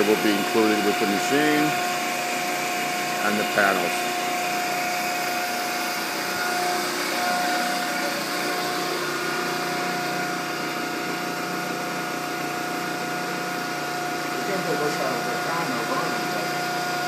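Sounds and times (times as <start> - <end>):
high whine: 0.0 - 11.4.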